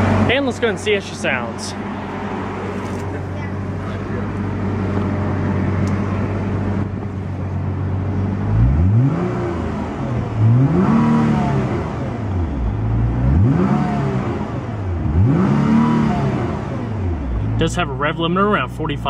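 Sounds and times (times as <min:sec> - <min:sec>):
car engine idling: 0:00.0 - 0:15.3, 0:16.1 - 0:19.0
engine revving: 0:07.8 - 0:19.0.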